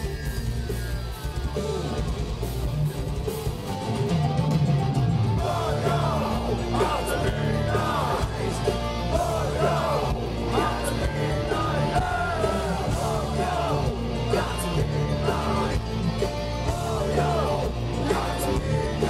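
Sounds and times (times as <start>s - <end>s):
distorted electric guitars: 0.0s - 19.0s
drums: 0.0s - 19.0s
harsh shouted vocals: 5.4s - 19.0s.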